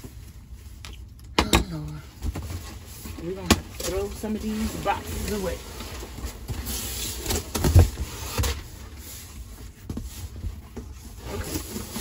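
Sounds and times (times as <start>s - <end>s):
cardboard rubbing and scraping: 4.4s - 12.0s.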